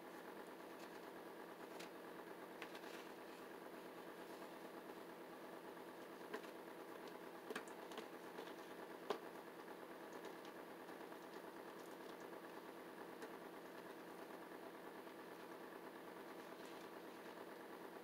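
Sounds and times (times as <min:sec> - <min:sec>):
steady mechanical hum: 0:00.0 - 0:18.0
dog feeding clicks and taps: 0:06.3 - 0:09.3.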